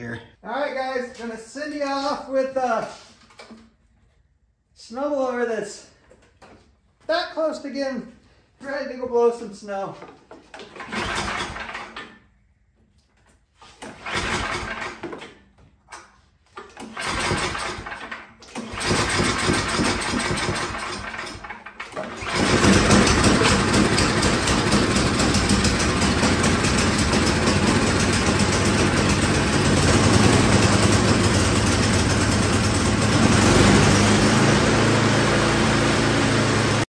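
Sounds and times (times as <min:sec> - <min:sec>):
snowblower engine cranking and running: 0:10.5 - 0:12.3, 0:13.6 - 0:15.5, 0:16.5 - 0:36.9.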